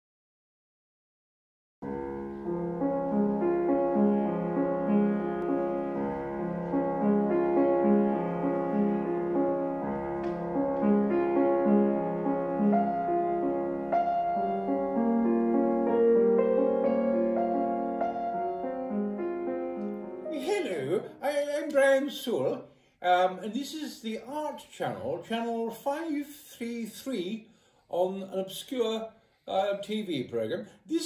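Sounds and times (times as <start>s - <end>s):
gentle piano-like keyboard music: 1.8s - 22.1s.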